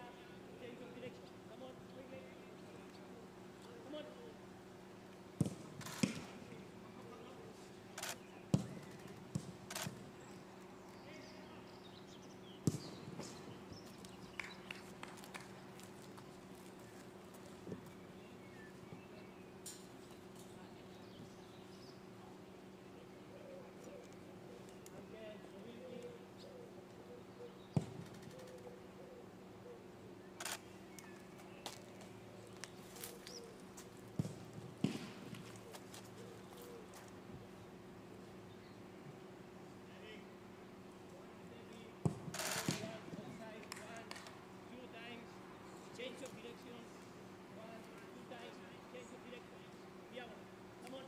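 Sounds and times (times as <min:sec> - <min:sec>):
steady low hum: 0:00.0 - 0:51.0
ball kicking thumps: 0:05.4 - 0:06.6, 0:08.5 - 0:10.0, 0:12.6 - 0:13.6, 0:27.8 - 0:28.1, 0:34.2 - 0:35.6, 0:42.0 - 0:43.3
camera shutters clicking: 0:08.0 - 0:09.0, 0:09.6 - 0:10.0, 0:30.4 - 0:30.7.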